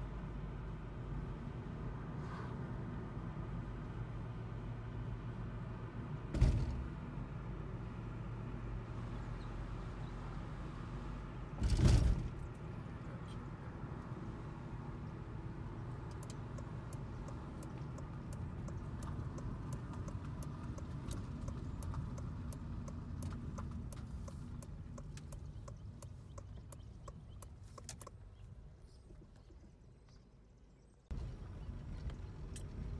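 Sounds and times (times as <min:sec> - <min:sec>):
car engine and tyre rumble: 0:00.0 - 0:32.9
sharp irregular clicks: 0:16.0 - 0:28.1.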